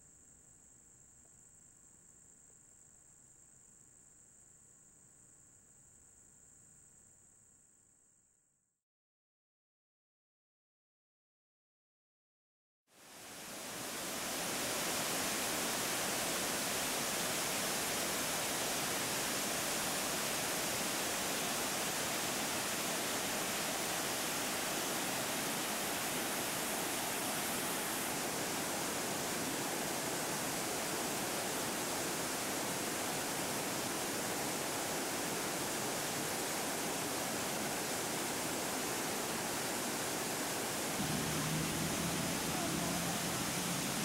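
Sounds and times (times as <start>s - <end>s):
waterfall rushing: 13.0s - 44.0s.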